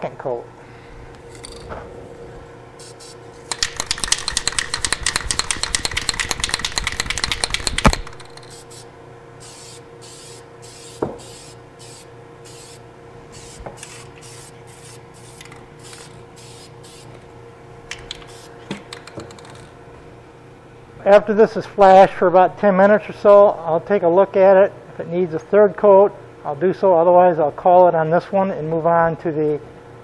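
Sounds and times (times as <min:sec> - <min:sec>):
exhaust fan hum: 0:00.0 - 0:30.0
spray can ball rattling: 0:02.8 - 0:08.8, 0:13.4 - 0:17.1, 0:18.1 - 0:19.7
spray paint hissing: 0:02.8 - 0:17.2, 0:18.2 - 0:18.6
sharp click: 0:03.5 - 0:08.6.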